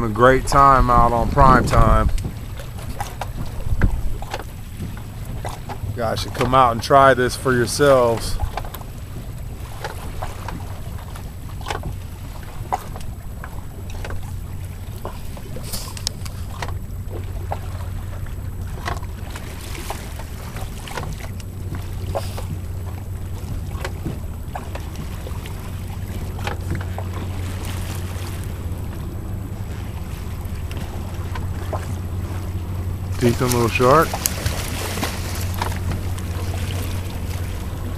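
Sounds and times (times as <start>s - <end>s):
boat engine humming: 0.0s - 37.9s
wind on microphone: 0.0s - 37.9s
light clicks and knocks: 1.7s - 6.7s, 8.2s - 17.6s, 18.8s - 29.0s.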